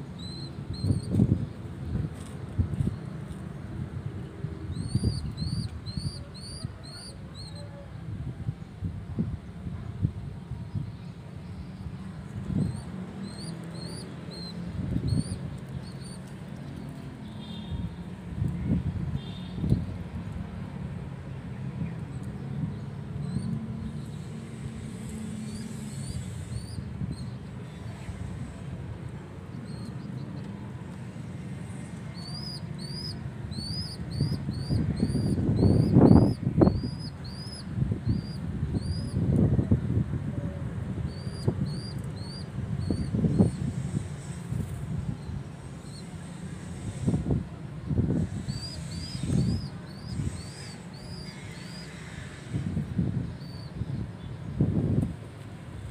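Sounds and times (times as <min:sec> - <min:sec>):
young pigeon peeping: 0:00.2 - 0:01.2, 0:04.7 - 0:07.8, 0:12.6 - 0:16.8, 0:32.1 - 0:39.2, 0:41.1 - 0:43.9, 0:48.2 - 0:52.4.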